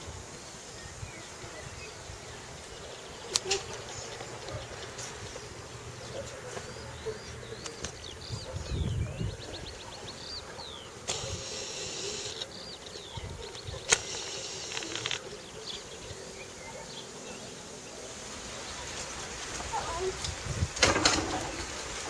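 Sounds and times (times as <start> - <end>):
small birds chirping: 9.7 - 15.2
sharp click: 11.1 - 12.4, 13.9 - 15.2.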